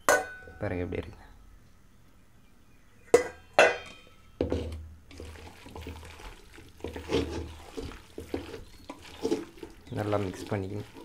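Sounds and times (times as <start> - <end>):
metal bowl and spoon clinking: 3.2 - 4.2, 5.2 - 11.0
hot oil sizzling: 5.1 - 11.0.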